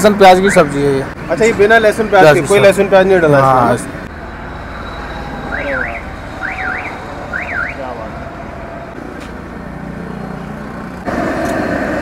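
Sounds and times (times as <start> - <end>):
street noise: 0.0 - 12.0
electronic alarm chirp: 4.4 - 7.8.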